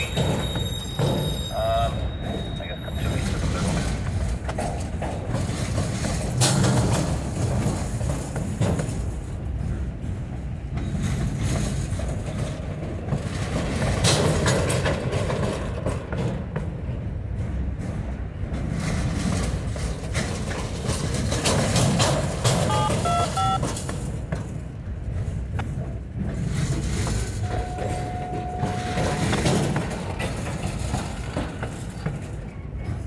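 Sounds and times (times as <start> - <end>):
sharp clacks of train wheels: 0.0 - 33.0
steel wheels rumbling on rail: 0.0 - 33.0.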